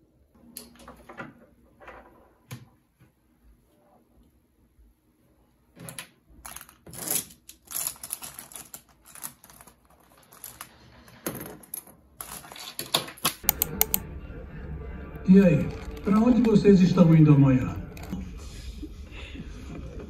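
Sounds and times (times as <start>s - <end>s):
pens clicking and clattering: 6.4s - 14.0s, 15.6s - 16.9s, 17.8s - 18.2s.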